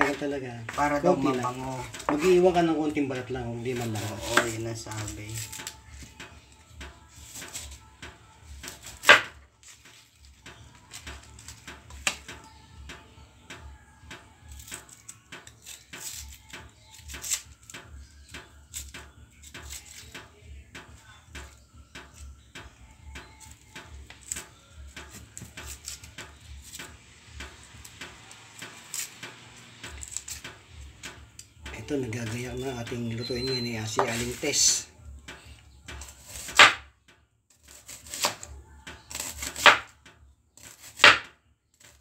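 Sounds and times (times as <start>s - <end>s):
knife chopping on wooden board: 0.0s - 6.2s, 7.2s - 7.8s, 8.6s - 9.4s, 23.2s - 28.0s, 28.6s - 31.2s, 35.3s - 36.9s, 37.6s - 38.5s, 39.1s - 40.0s, 40.6s - 42.0s.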